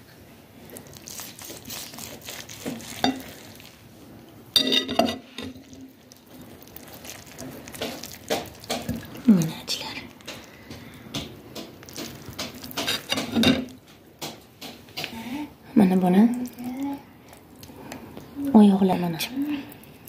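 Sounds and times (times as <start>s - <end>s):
soft wet tearing and scraping: 0.6s - 4.2s, 5.2s - 10.6s.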